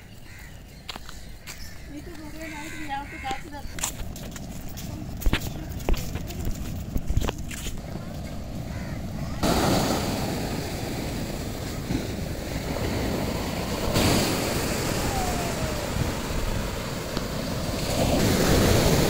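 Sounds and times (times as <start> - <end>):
wind rumbling on microphone: 0.0 - 19.0
surf breaking on beach: 7.9 - 19.0.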